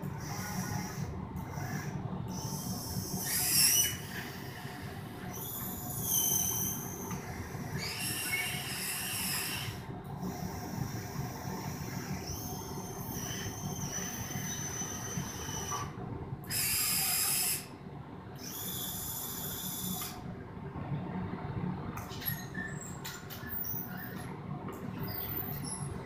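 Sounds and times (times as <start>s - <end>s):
small electric motors whining: 0.2s - 17.7s, 18.4s - 20.2s.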